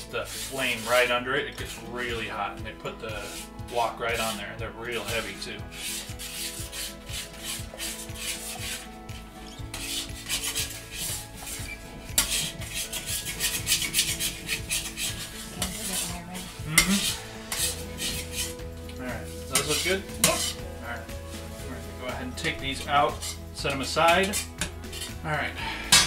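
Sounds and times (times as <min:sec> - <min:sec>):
metal utensil scraping wok: 0:00.0 - 0:26.0.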